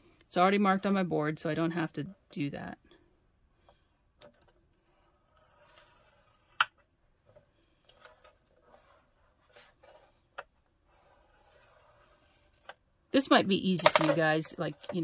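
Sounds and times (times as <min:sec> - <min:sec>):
scratchy rubbing on paper: 0:10.9 - 0:12.7.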